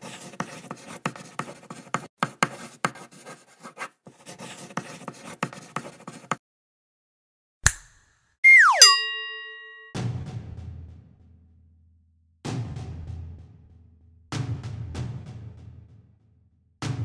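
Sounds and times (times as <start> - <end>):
pencil scratching on paper: 0.0 - 6.4.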